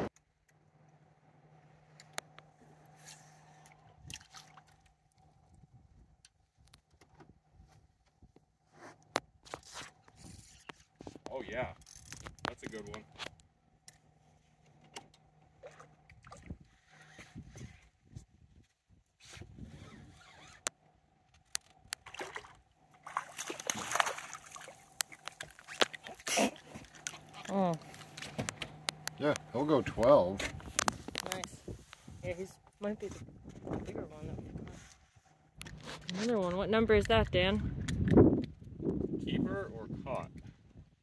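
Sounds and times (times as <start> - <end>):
fish splashing at water surface: 22.0 - 28.3.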